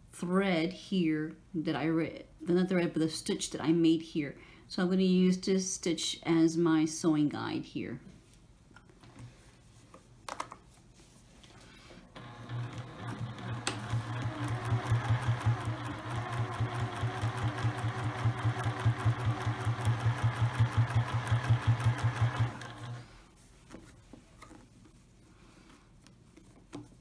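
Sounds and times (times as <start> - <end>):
sewing machine motor hum: 12.1 - 23.2
sewing machine needle ticking: 12.2 - 23.0.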